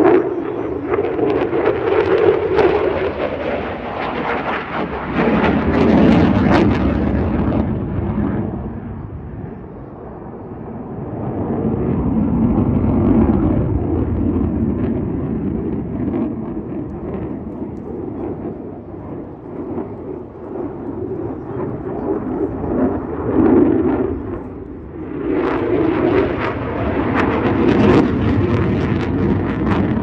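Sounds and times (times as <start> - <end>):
fighter jet engine roar: 0.0 - 30.0.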